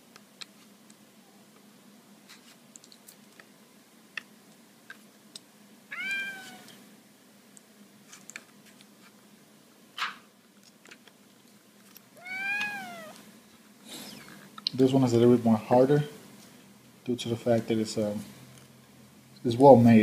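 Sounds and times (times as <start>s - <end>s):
cat meowing: 5.9s - 6.8s, 12.2s - 13.2s.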